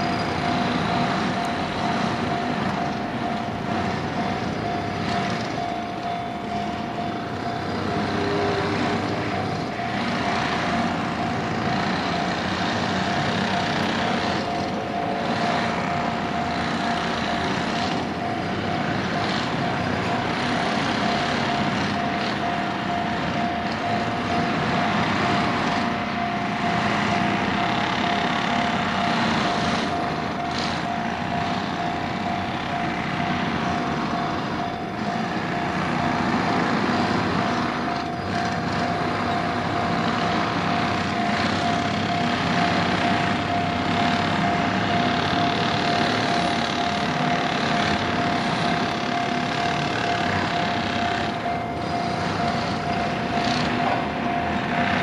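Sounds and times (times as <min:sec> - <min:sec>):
continuous rushing noise: 0:00.0 - 0:55.0
level crossing alarm ringing: 0:00.0 - 0:55.0.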